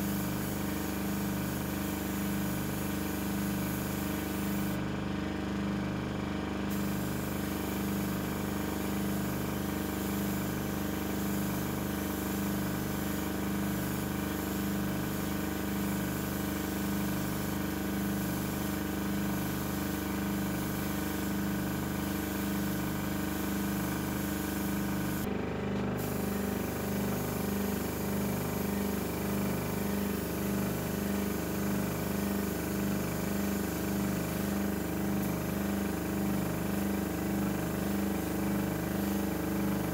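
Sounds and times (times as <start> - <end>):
spray gun hissing: 0.0 - 4.8, 6.7 - 25.3, 26.0 - 39.9
air compressor humming: 0.0 - 39.9.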